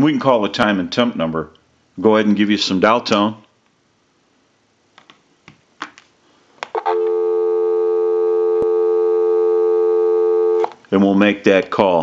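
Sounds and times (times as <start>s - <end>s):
telephone dial tone: 6.8s - 10.7s.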